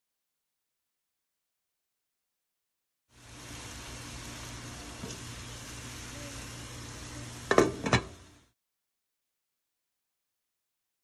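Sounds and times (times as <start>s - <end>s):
pot cooking on stove: 3.1s - 8.6s.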